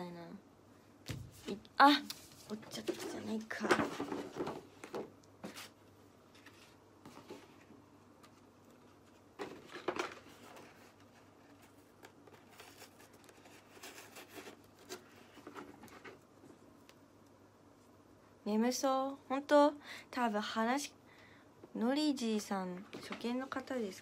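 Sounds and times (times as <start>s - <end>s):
soft rustling: 1.2s - 16.9s.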